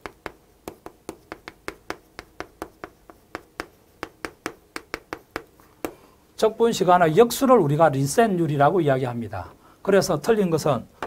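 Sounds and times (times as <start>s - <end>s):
chalk tapping on chalkboard: 0.0s - 6.0s.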